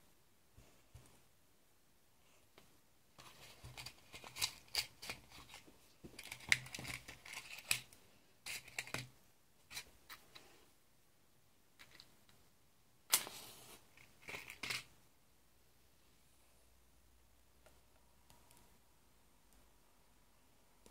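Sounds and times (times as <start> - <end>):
plastic straw clicks and crinkles: 3.2 - 9.1.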